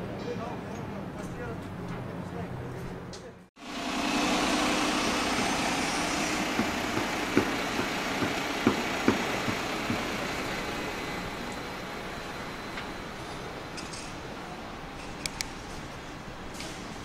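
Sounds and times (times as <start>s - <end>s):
heavy engine running: 3.6s - 17.0s.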